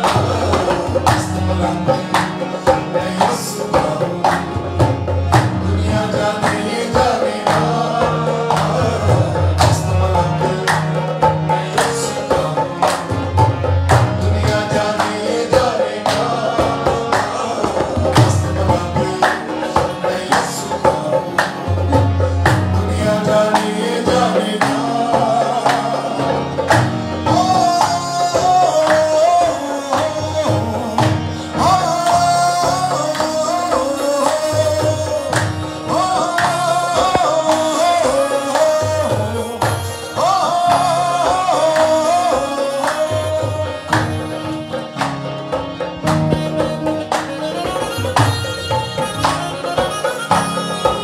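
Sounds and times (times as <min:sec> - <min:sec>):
hand claps: 0:00.0 - 0:02.6, 0:04.2 - 0:05.5, 0:08.5 - 0:10.0, 0:10.6 - 0:16.4, 0:17.1 - 0:22.6, 0:26.6 - 0:29.3, 0:32.0 - 0:51.0
man singing: 0:00.0 - 0:45.4
harmonium playing: 0:00.0 - 0:51.0.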